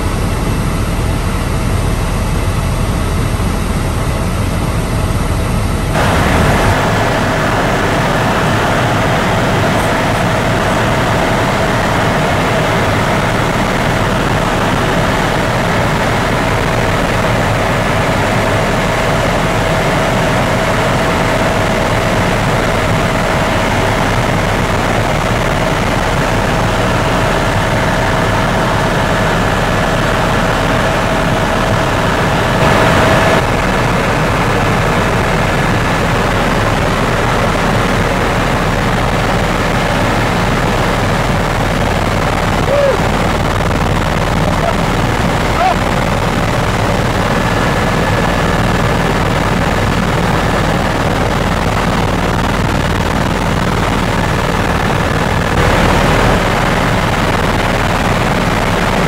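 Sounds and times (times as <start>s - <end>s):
helicopter rotor and turbine noise: 0.0s - 59.0s
turbine whine: 0.0s - 59.0s.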